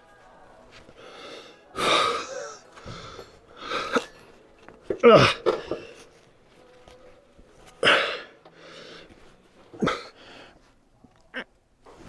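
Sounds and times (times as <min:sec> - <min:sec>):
man breathing heavily: 0:00.9 - 0:04.0, 0:07.8 - 0:10.8.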